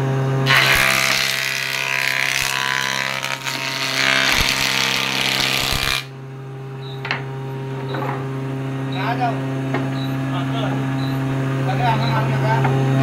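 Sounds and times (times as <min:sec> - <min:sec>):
planer cutting wood: 0:00.4 - 0:06.1.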